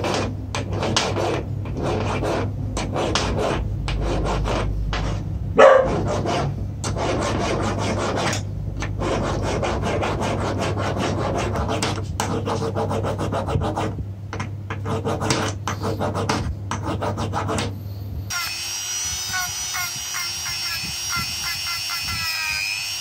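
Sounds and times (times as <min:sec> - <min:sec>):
hand file rasping on metal: 0:00.0 - 0:13.9.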